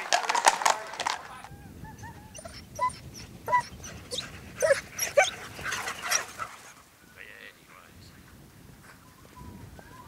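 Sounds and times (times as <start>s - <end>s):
hounds yelping and whining: 1.8s - 6.8s.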